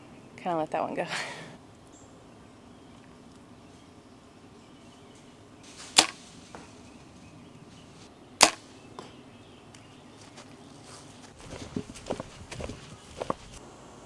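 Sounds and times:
bow string snapping: 5.9s - 6.2s, 8.4s - 8.7s.

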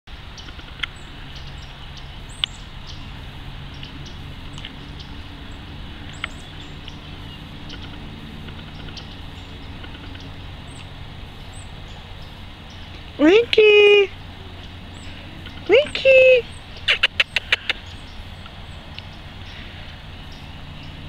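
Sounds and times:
bird chirping: 0.3s - 21.0s
sharp clicks: 16.8s - 17.8s.

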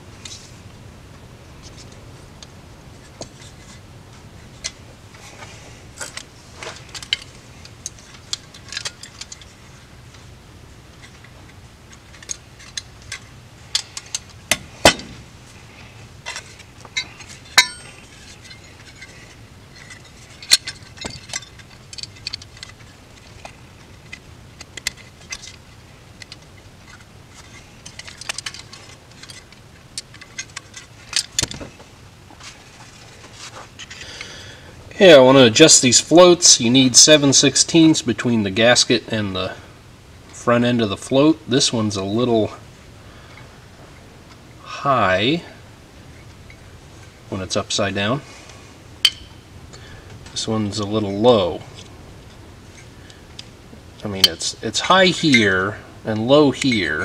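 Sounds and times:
light metallic clicks and clinks: 16.2s - 31.6s.

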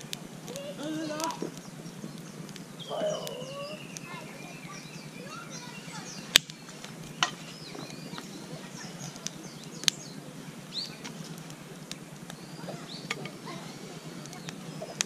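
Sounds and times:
birds singing and chirping: 0.0s - 15.0s
campfire crackling and popping: 0.0s - 15.0s.

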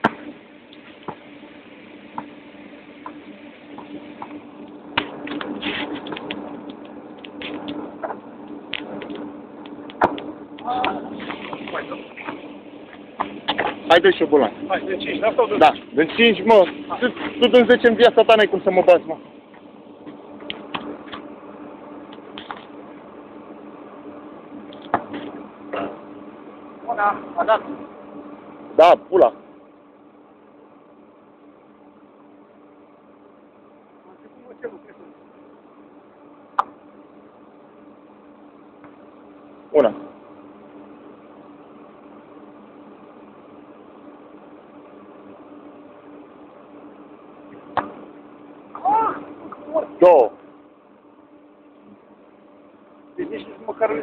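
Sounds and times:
football kick: 0.0s - 0.3s, 10.0s - 10.2s, 47.7s - 48.0s
steady low hum: 0.0s - 54.0s.

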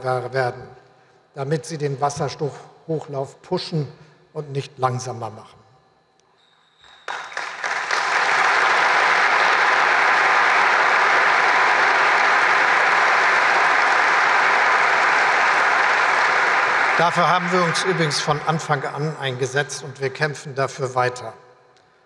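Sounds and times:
audience applause: 6.8s - 19.2s.

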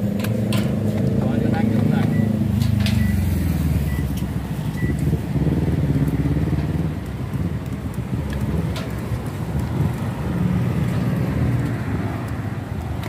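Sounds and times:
passing motor traffic rumble: 0.0s - 13.0s.

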